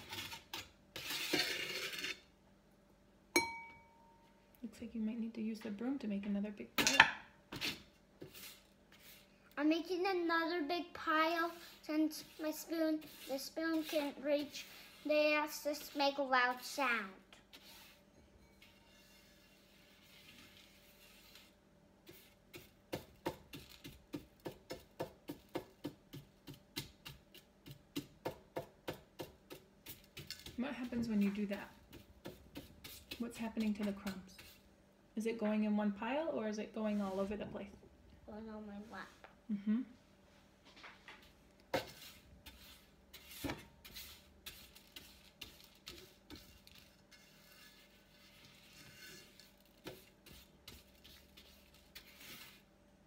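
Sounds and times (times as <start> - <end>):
metal spoon scraping a metal tray: 0.0 - 2.3, 17.5 - 22.4, 41.8 - 52.7.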